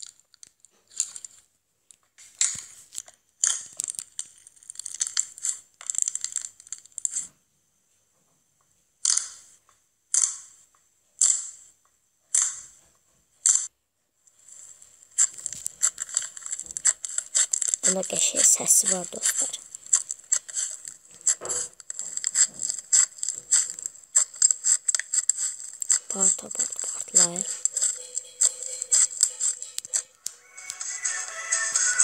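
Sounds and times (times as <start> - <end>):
slime crackling: 2.4 - 7.3, 14.4 - 32.0.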